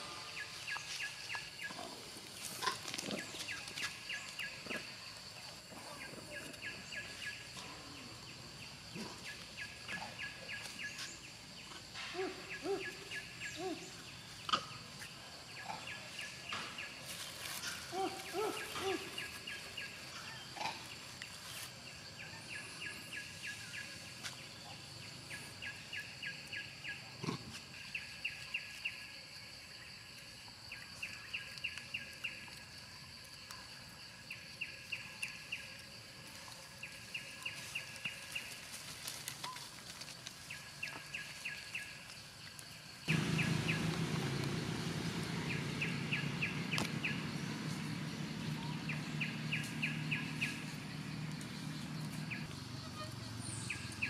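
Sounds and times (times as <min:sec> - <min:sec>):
high insect drone: 0:40.4 - 0:54.0
low rumble: 0:43.1 - 0:52.4.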